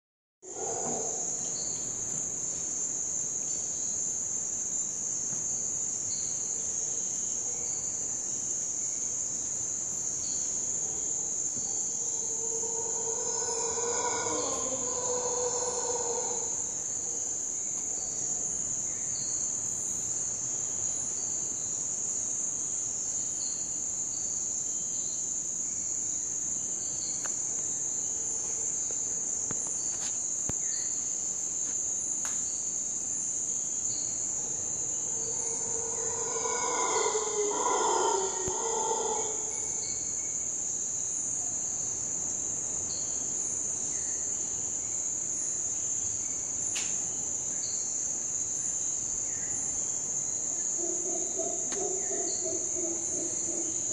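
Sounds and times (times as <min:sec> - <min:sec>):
howler monkey call: 0:00.4 - 0:01.6, 0:11.7 - 0:17.4, 0:34.3 - 0:40.2, 0:50.6 - 0:53.9
insect chirps: 0:00.4 - 0:53.9
night insects droning: 0:00.4 - 0:53.9.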